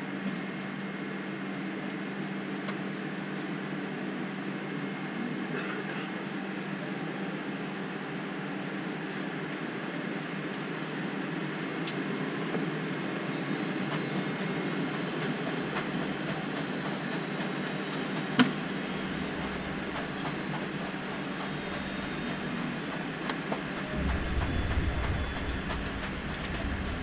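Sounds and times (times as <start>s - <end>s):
jet engines humming: 6.2s - 27.0s
wheels ticking over pavement joints: 19.1s - 27.0s.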